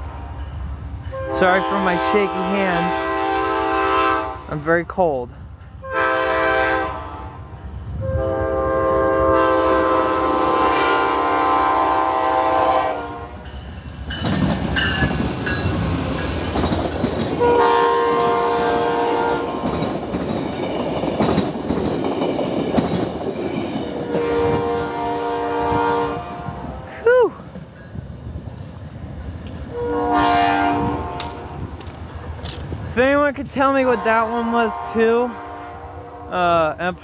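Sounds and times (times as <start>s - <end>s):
train cars rushing and clattering: 0.0s - 6.7s, 7.4s - 35.6s
train air horn blasts: 1.1s - 4.6s, 5.8s - 13.4s, 17.4s - 19.5s, 24.1s - 26.8s, 29.7s - 31.6s, 33.9s - 36.4s.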